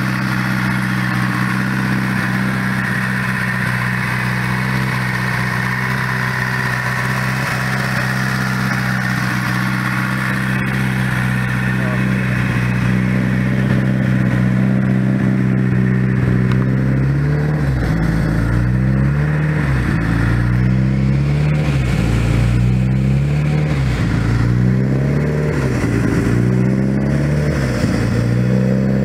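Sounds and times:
car engine idling and revving: 0.0 - 29.0.

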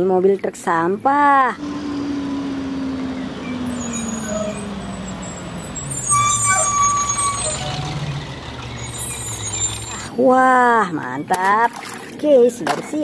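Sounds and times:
garbage truck engine driving past: 1.6 - 10.1
truck brakes squealing: 1.6 - 10.2.

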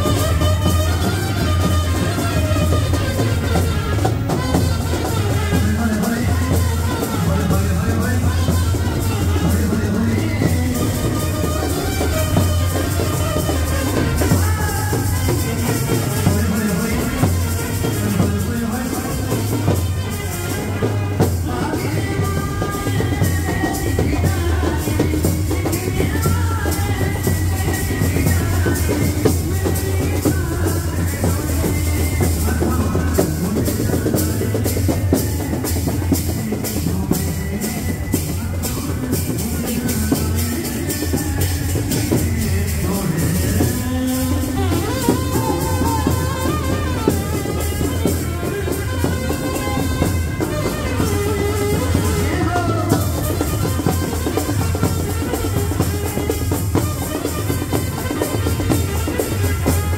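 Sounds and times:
amplified band music: 0.0 - 59.9
drum kit beat: 0.0 - 59.9
person singing: 0.0 - 59.9
trumpets: 0.0 - 59.9.

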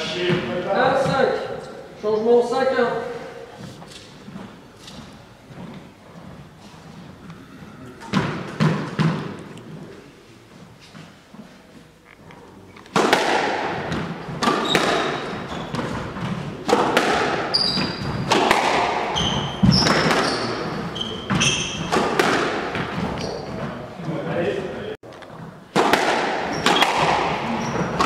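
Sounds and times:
shoes squeaking on wooden floor: 3.3 - 12.8, 13.9 - 16.7, 17.3 - 24.2, 26.4 - 28.0
squash ball cracking off rackets: 12.9 - 23.4, 25.2 - 28.0.

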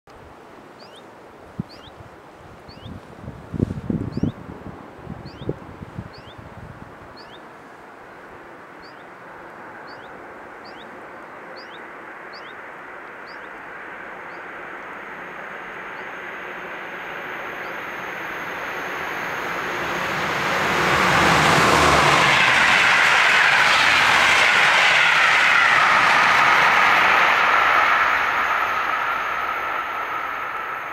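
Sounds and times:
bird chirping: 0.8 - 1.0, 1.7 - 2.0, 2.7 - 3.0, 5.2 - 5.5, 6.1 - 6.4, 7.2 - 7.4, 8.8 - 9.1, 9.8 - 12.6, 13.2 - 13.6
train passing: 3.5 - 30.9.

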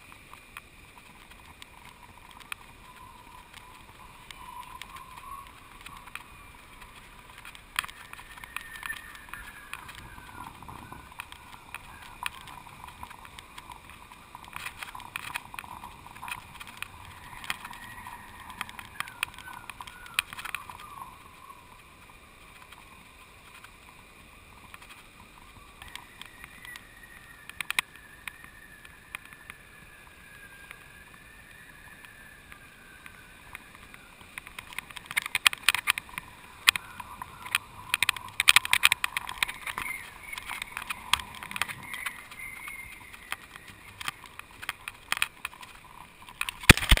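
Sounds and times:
faint wavering whistle: 2.2 - 7.0, 7.8 - 13.8, 14.9 - 21.8, 25.4 - 34.2, 36.0 - 44.9
camera rig ticking and clattering: 43.4 - 47.0.

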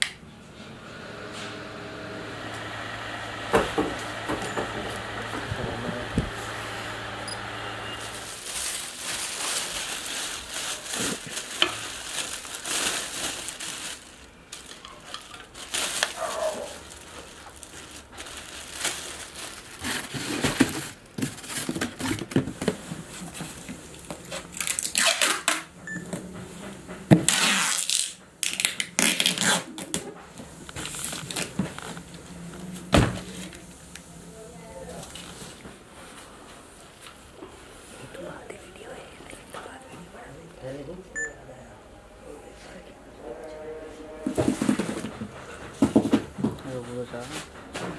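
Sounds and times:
exhaust fan motor humming: 0.0 - 12.0, 25.7 - 47.9
cardboard cartons rustling: 4.4 - 25.0, 29.0 - 33.9, 44.2 - 47.9
plastic wrapping crinkling: 8.0 - 25.6, 27.2 - 34.1.

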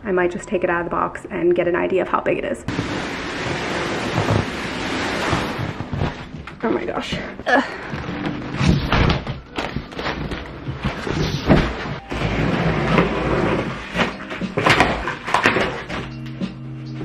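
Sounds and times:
cardboard box scraped across floor: 2.7 - 6.3, 9.9 - 16.1
cardboard knocking and rustling: 2.7 - 6.6, 7.9 - 16.3.

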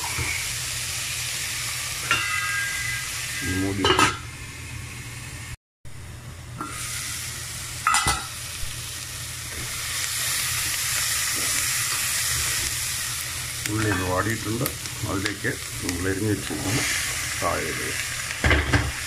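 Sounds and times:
onions sizzling in a pan: 0.0 - 19.0
metal pan lid clinking: 2.0 - 2.9.

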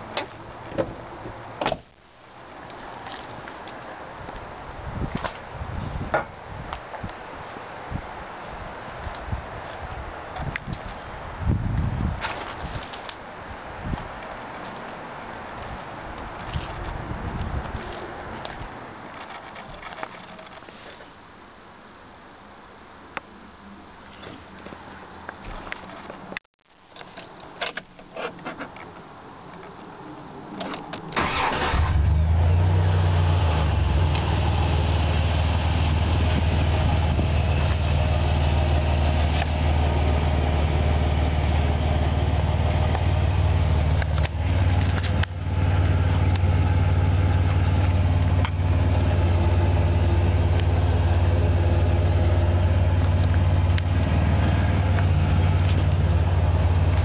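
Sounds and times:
engine starter cranking: 31.2 - 32.2
engine idling: 31.2 - 57.0.

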